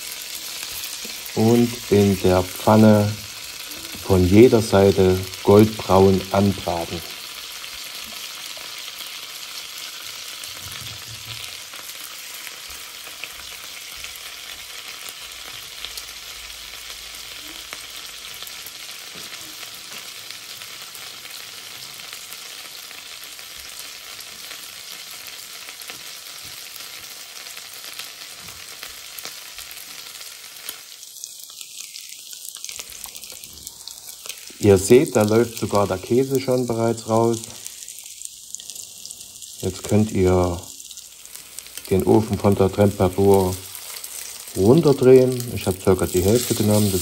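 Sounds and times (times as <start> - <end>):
fritters sizzling in a frying pan: 0.0 - 47.0
small crackles: 25.6 - 40.0, 40.6 - 47.0.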